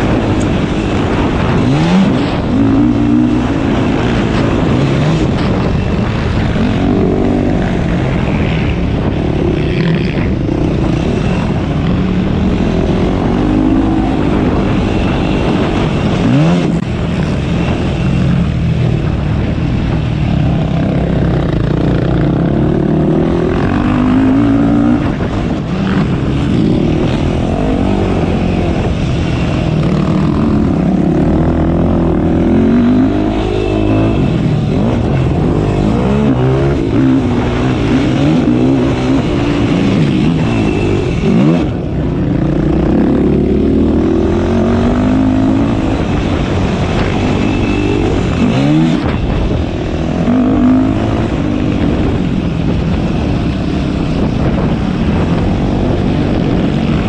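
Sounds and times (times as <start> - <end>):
quad engine revving: 20.5 - 29.0, 29.7 - 49.2, 50.0 - 52.2.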